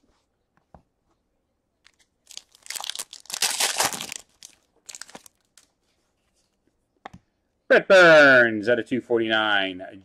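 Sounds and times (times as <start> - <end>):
wrapper crackling and crinkling: 1.8 - 5.7.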